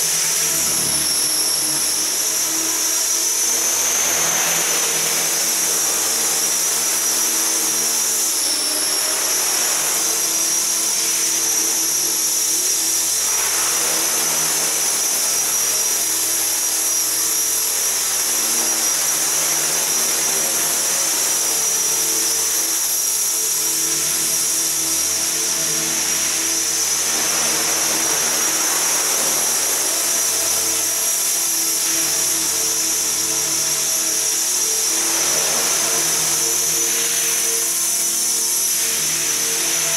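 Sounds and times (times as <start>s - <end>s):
rc helicopter motor whine: 0.0s - 39.9s.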